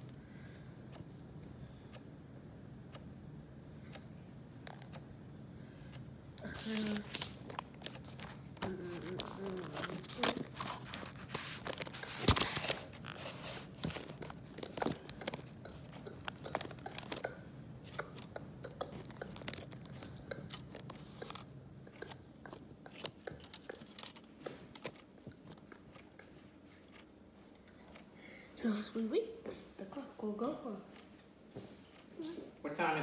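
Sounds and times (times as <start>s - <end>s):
crunching and clicking: 6.4s - 28.0s.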